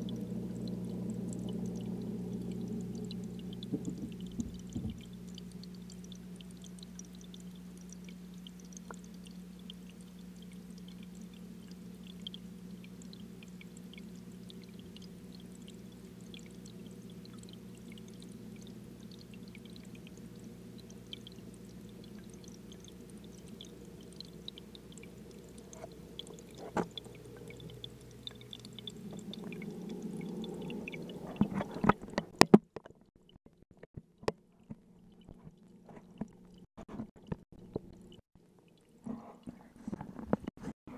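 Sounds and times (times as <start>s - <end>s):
faint ticks: 0.0s - 32.4s
aquarium low hum: 0.0s - 32.5s, 33.8s - 40.9s
knocks and bumps: 3.7s - 5.0s.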